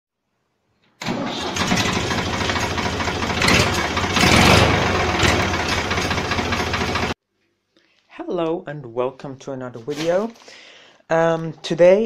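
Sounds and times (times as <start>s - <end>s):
tractor diesel engine running: 1.0s - 7.2s.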